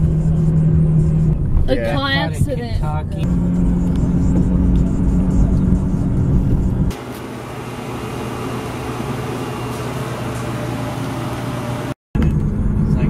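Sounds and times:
car road rumble: 0:00.0 - 0:13.0
fan whooshing: 0:03.2 - 0:12.0.

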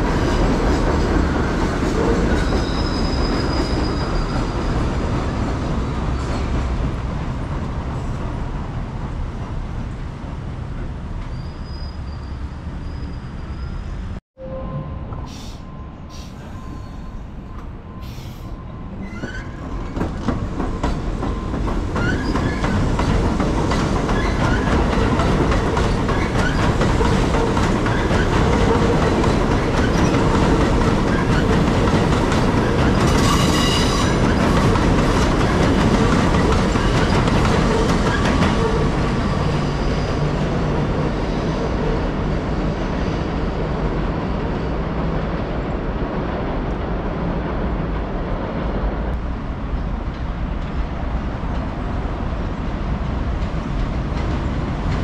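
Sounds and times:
subway train rumbling: 0:00.0 - 0:55.0
high wheel squeal: 0:02.1 - 0:04.9, 0:11.2 - 0:17.4, 0:18.0 - 0:20.0, 0:32.6 - 0:34.4, 0:37.1 - 0:40.5
wheels clacking over rail joints: 0:19.0 - 0:40.9.

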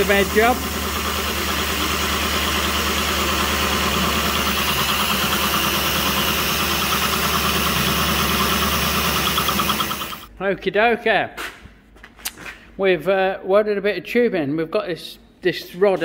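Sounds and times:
coolant mist spraying: 0:00.0 - 0:10.3
milling machine cutting metal: 0:00.0 - 0:10.3.

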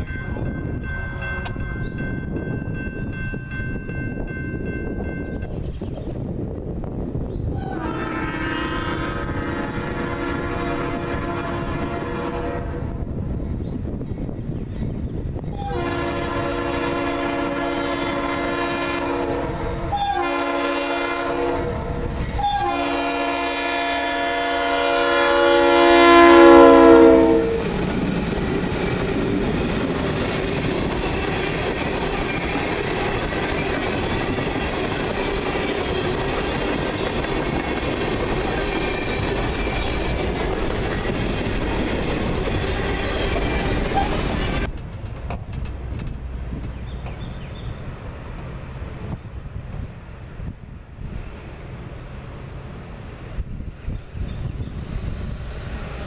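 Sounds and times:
train cars rumbling: 0:00.0 - 0:56.0
locomotive air horn blasts: 0:07.6 - 0:13.0, 0:15.6 - 0:27.8
wheels clacking over rail joints: 0:27.6 - 0:48.6.

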